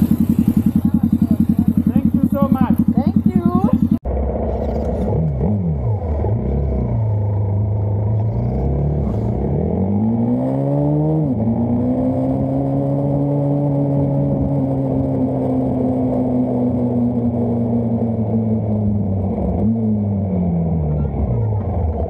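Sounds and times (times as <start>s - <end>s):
motorcycle engine pulling away: 0.0s - 22.0s.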